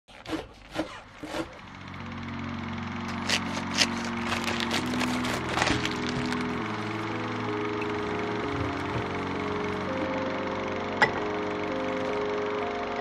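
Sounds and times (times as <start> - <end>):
background music chord: 1.6 - 13.0
plastic wrapper crackling: 3.1 - 9.8.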